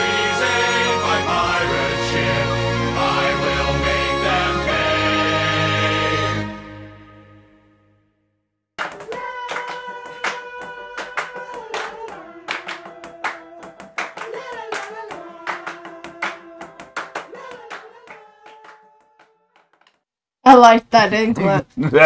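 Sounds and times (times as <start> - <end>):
group singing: 0.0 - 6.8, 9.2 - 18.4
hand claps: 8.8 - 20.0.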